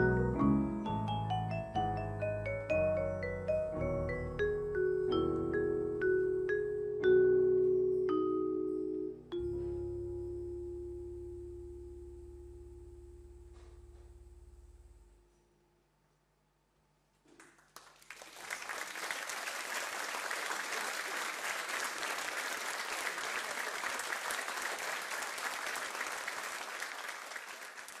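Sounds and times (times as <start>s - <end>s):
percussion ringing note: 9.4s - 15.2s
audience applause: 17.3s - 28.0s.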